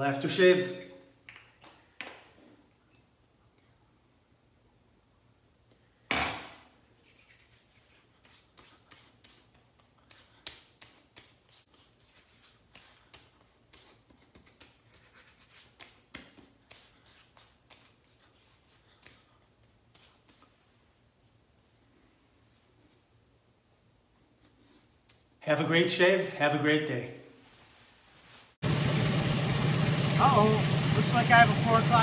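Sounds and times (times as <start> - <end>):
hands patting and rubbing face: 7.0 - 21.7, 24.6 - 25.4.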